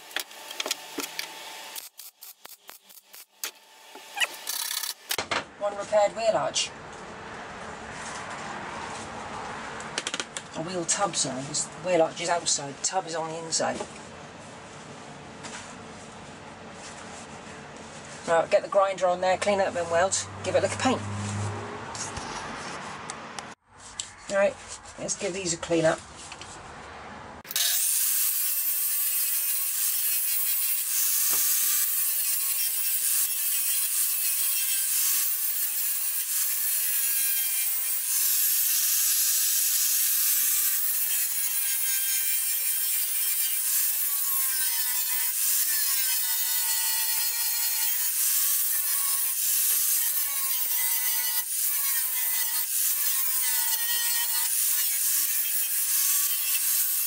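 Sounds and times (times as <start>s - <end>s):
angle grinder grinding metal: 0.0s - 5.2s, 27.5s - 57.0s.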